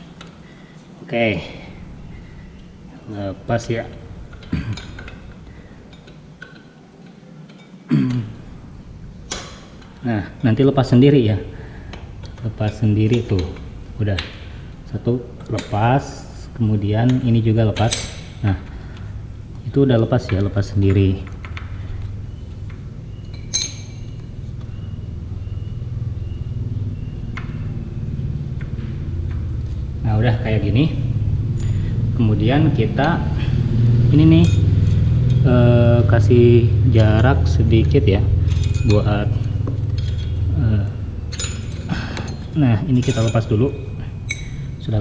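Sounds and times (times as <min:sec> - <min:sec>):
steady low hum: 0:00.0 - 0:45.0
small metallic clinks and taps: 0:04.3 - 0:07.8, 0:17.1 - 0:24.9, 0:34.3 - 0:35.5, 0:38.3 - 0:40.6, 0:41.2 - 0:44.8
sharp metallic clink: 0:23.1 - 0:26.6, 0:34.2 - 0:35.5, 0:38.2 - 0:44.8.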